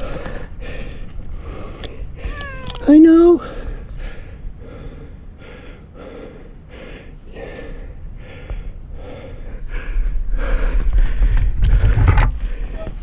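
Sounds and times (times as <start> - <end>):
person breathing hard: 0.0 - 2.5, 3.4 - 12.8.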